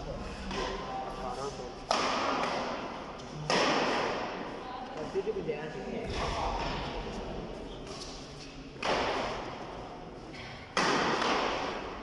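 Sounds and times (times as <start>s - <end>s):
racket hitting shuttlecock: 1.9s - 4.4s, 8.8s - 9.6s, 10.7s - 12.0s.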